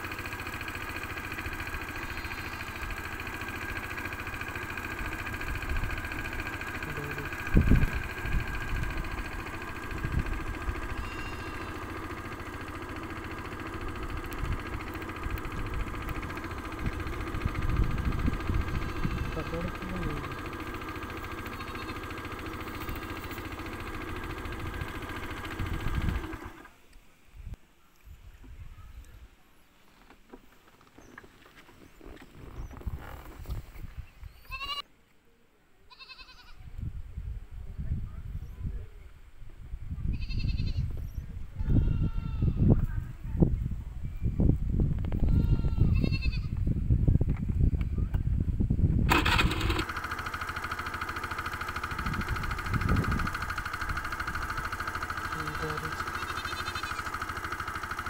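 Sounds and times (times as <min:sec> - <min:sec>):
small engine idling: 0:00.0 - 0:27.0, 0:29.9 - 0:34.8, 0:40.2 - 0:58.0
goat bleating: 0:01.9 - 0:02.9, 0:10.8 - 0:12.0, 0:18.7 - 0:20.4, 0:21.2 - 0:23.4, 0:34.5 - 0:34.8, 0:35.9 - 0:36.6, 0:40.1 - 0:40.9, 0:41.6 - 0:42.6, 0:45.2 - 0:46.5, 0:55.4 - 0:57.1.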